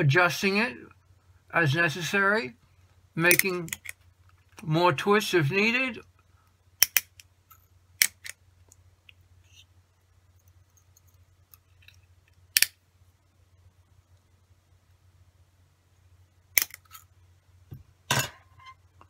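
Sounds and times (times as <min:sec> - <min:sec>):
low steady hum: 0:00.0 - 0:19.0
wire-twisting tool clicks: 0:06.8 - 0:07.3.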